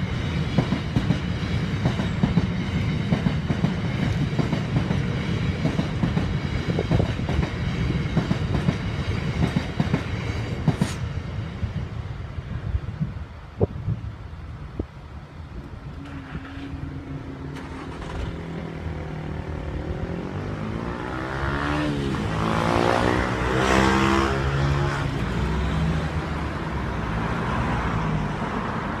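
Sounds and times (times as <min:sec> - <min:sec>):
car passing close: 0:15.9 - 0:29.0
car engines pulling away: 0:16.0 - 0:24.8.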